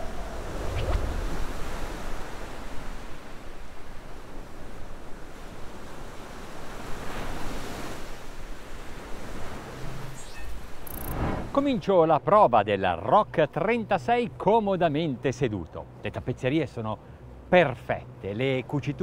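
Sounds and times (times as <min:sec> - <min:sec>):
sea waves rushing: 0:00.0 - 0:12.0
wind: 0:00.0 - 0:19.0.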